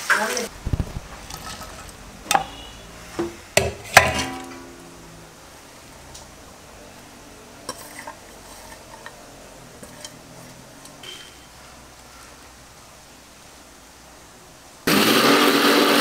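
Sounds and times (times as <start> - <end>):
faint steady hiss: 0.0 - 14.9
steel bowls and plates clinking: 1.2 - 4.9, 7.6 - 12.1.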